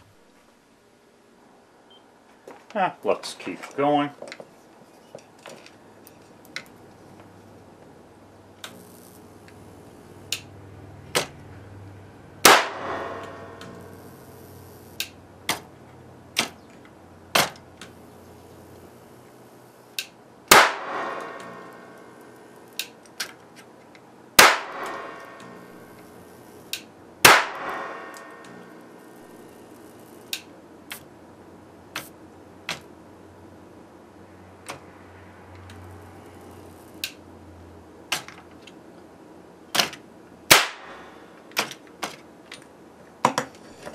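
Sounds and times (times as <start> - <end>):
sharp electrical snaps: 8.6 - 11.4, 12.4 - 31.1, 31.9 - 32.9, 35.5 - 37.3, 39.7 - 42.6
loud electrical bangs: 12.4 - 23.5, 24.3 - 31.1, 39.7 - 42.2.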